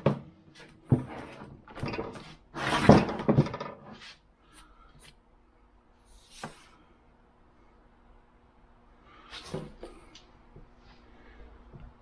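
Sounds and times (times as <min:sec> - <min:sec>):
iron vise scraping on workbench: 0:00.9 - 0:04.2.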